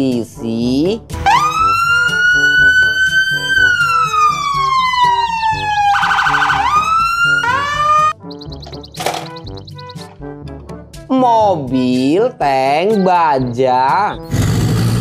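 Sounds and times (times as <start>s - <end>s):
police siren wailing: 1.2s - 8.2s
siren yelp: 1.2s - 8.2s.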